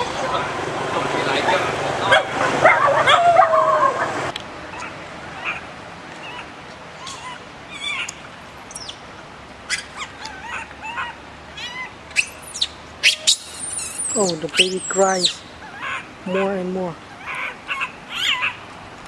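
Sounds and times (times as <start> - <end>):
baby monkey crying: 6.2 - 8.1, 9.7 - 16.5, 17.1 - 18.6
high monkey squeals: 6.2 - 8.1, 9.7 - 16.1, 17.1 - 18.6.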